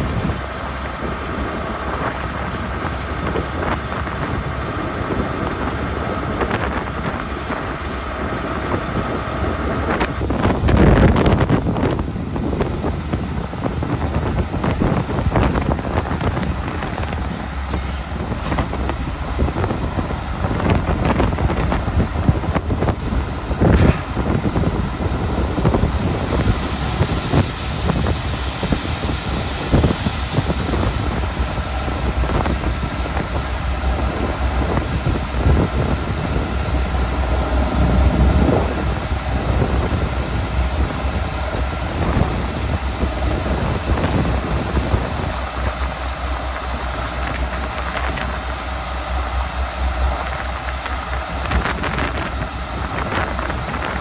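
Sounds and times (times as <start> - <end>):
tractor diesel engine running: 0.0 - 54.0
grain auger unloading corn: 14.8 - 54.0.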